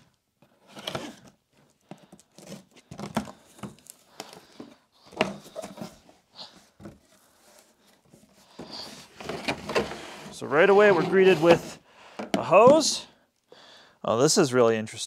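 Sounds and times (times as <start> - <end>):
cardboard flaps scraping and knocking: 2.4 - 6.1, 6.8 - 11.8.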